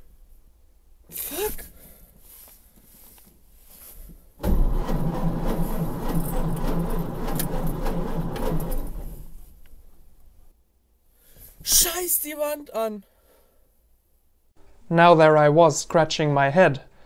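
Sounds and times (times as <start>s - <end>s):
starter cranking engine: 4.4s - 9.4s.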